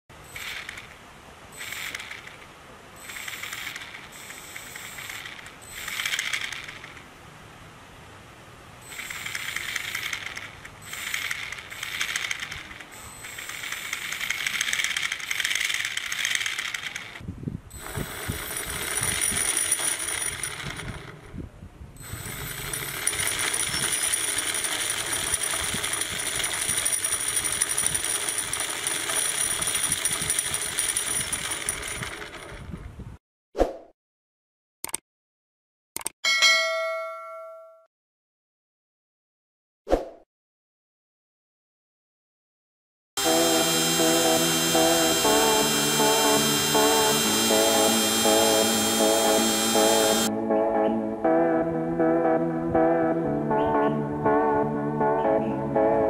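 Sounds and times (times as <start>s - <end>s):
small electric motor whirring: 0.3s - 0.9s, 1.6s - 2.4s, 3.0s - 6.9s, 8.9s - 17.2s, 17.8s - 21.1s, 22.0s - 32.2s, 43.2s - 50.3s
gear rattle: 9.0s - 17.2s, 17.8s - 21.3s, 22.2s - 32.8s
high motor whine: 22.0s - 26.4s, 43.2s - 50.4s.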